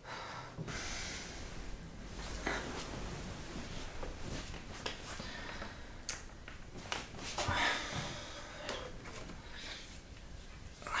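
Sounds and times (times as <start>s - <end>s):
man breathing heavily: 0.0s - 2.9s, 5.1s - 6.0s, 7.4s - 10.1s
bedding rustling: 1.4s - 5.9s.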